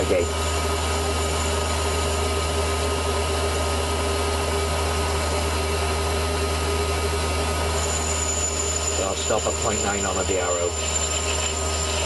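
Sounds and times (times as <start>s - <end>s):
lathe motor hum: 0.0s - 12.0s
lathe whine: 0.0s - 12.0s.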